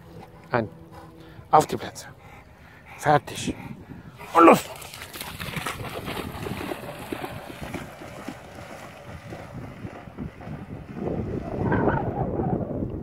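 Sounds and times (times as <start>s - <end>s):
wind buffeting microphone: 2.2s - 13.0s
dog splashing in shallow water: 4.2s - 11.6s.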